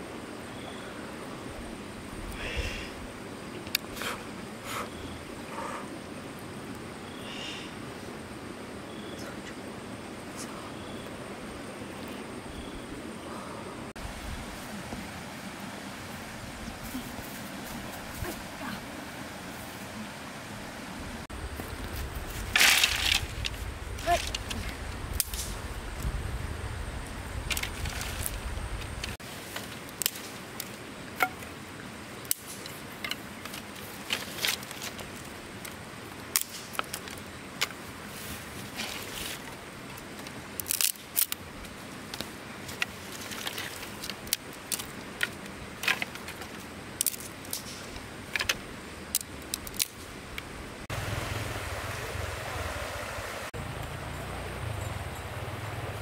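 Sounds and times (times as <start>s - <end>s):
river flowing: 13.3s - 21.7s, 46.6s - 56.0s
dry sticks clicking together: 35.6s - 37.8s, 40.0s - 41.4s, 42.1s - 50.5s.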